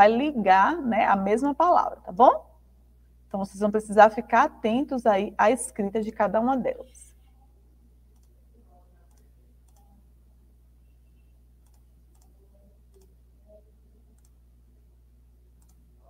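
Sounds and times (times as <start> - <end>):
steady low hum: 0.0 - 16.0
computer mouse clicks: 8.1 - 8.4, 9.1 - 10.0, 11.6 - 13.1, 14.2 - 14.4, 15.6 - 15.8.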